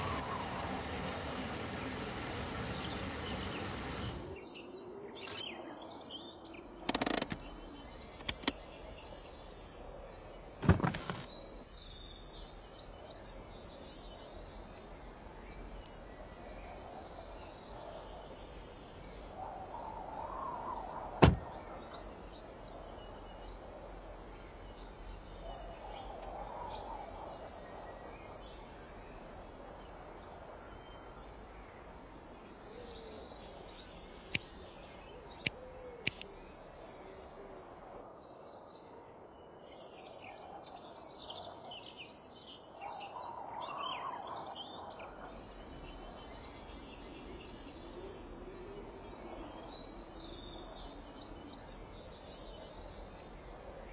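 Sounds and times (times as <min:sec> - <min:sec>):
birds chirping: 0:00.0 - 0:37.8
sharp clicks: 0:06.8 - 0:07.5, 0:08.2 - 0:08.6, 0:35.4 - 0:36.3
car door slamming: 0:10.6 - 0:11.2, 0:21.2 - 0:21.5
high insect hum: 0:42.1 - 0:53.9.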